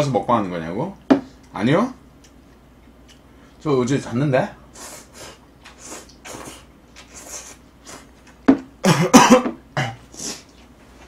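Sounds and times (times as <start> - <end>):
man coughing: 8.8 - 10.1
throat clearing: 8.8 - 10.4.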